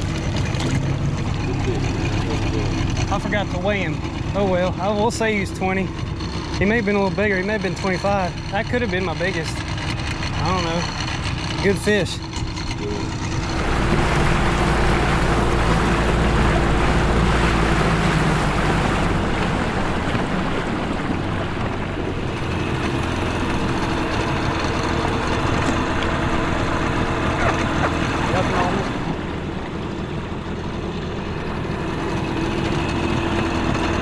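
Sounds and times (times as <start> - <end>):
outboard motor running: 0.0 - 34.0
water noise: 0.0 - 34.0
rushing wind: 13.2 - 28.3.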